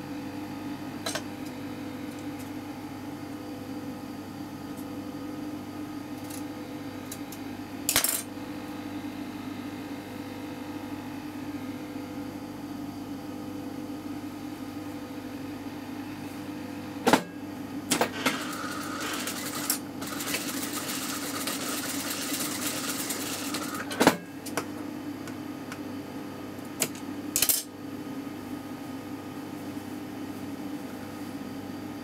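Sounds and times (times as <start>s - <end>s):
sewing machine stitching: 18.0s - 23.8s.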